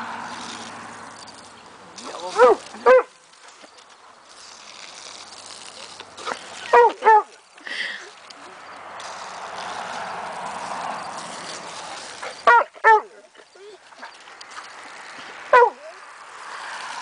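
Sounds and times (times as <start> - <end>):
water spraying from hose: 0.0 - 17.0
puppy barking in high yips: 2.4 - 3.1, 6.7 - 7.3, 12.4 - 13.6, 15.5 - 15.9.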